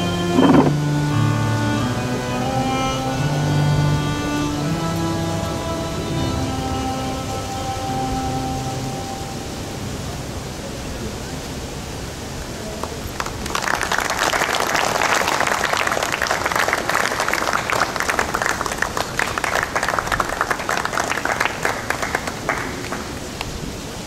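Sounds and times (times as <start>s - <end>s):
steady background hiss: 0.0s - 24.0s
audience applauding: 12.7s - 23.8s.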